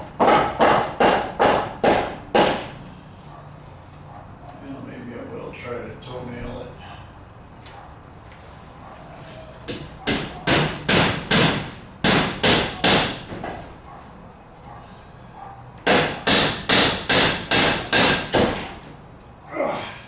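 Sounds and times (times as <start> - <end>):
hammer driving nails into wood: 0.2 - 2.7, 9.7 - 13.6, 15.8 - 18.7.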